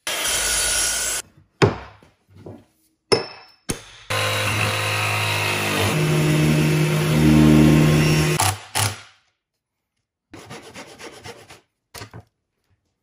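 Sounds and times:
miter saw running: 0:04.1 - 0:08.4
orbit sander humming: 0:04.1 - 0:08.4
jigsaw cutting plywood: 0:04.1 - 0:09.0.

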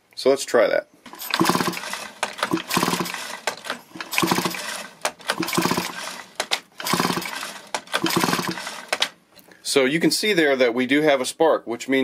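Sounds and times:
chainsaw recoil starter pulls: 0:01.1 - 0:09.2
sharp clicks: 0:01.1 - 0:09.2.

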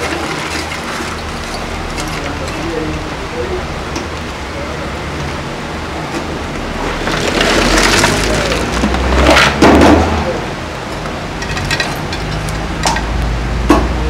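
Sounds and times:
stones poured and spread: 0:00.0 - 0:03.0, 0:06.8 - 0:10.1
stones rattling and crunching: 0:00.0 - 0:03.1, 0:06.8 - 0:10.1, 0:11.4 - 0:13.1.

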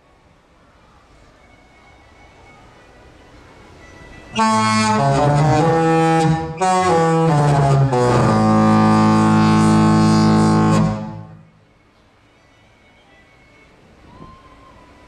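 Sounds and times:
ship horn playing a tune: 0:04.3 - 0:11.6.

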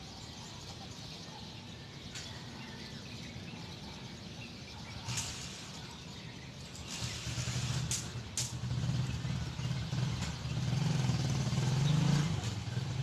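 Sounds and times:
faint bird chirps: 0:00.0 - 0:08.3.

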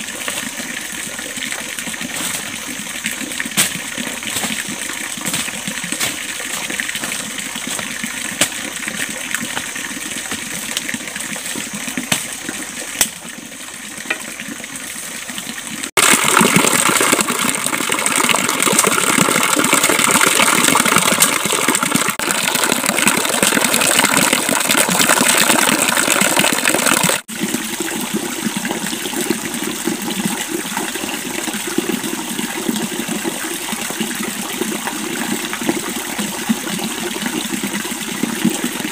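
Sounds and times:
stream running over rock: 0:00.0 - 0:38.9
water pouring down rock face: 0:00.0 - 0:38.9.

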